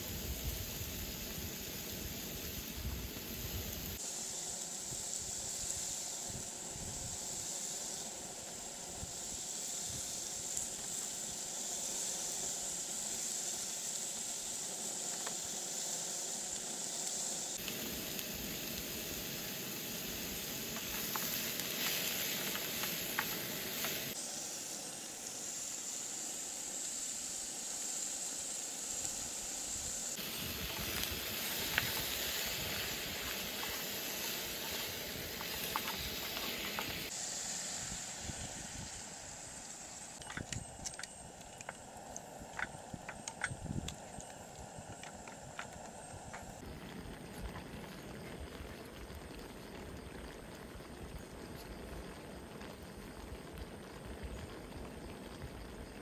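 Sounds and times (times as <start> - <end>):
food sizzling in a frying pan: 0.0 - 40.2
gas burner hissing: 0.0 - 46.7.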